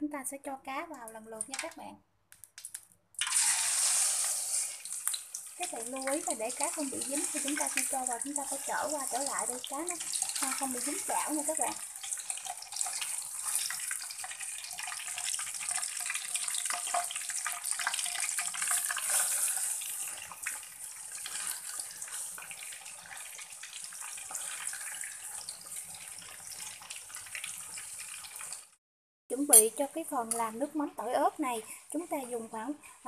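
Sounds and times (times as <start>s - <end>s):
fish sizzling in hot oil: 3.2s - 28.8s.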